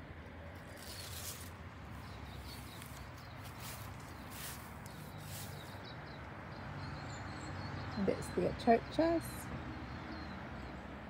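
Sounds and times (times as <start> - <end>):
footsteps swishing through grass: 0.6 - 5.8.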